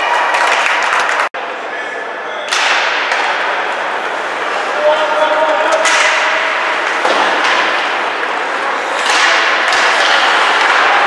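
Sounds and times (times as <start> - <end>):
hockey sticks and puck knocking: 2.5 - 3.5, 5.4 - 11.0
skate blades scraping ice: 5.9 - 11.0.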